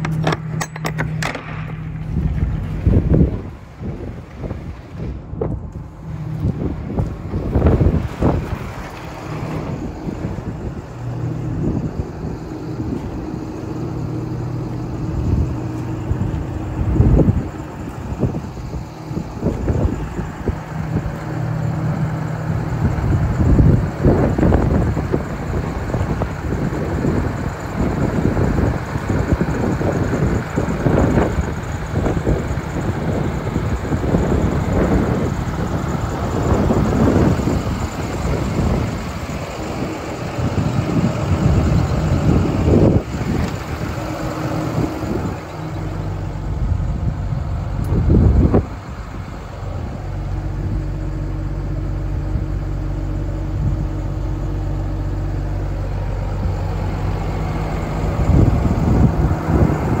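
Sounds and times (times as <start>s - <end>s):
diesel truck engine idling: 0.0s - 60.0s
wind buffeting microphone: 1.0s - 60.0s.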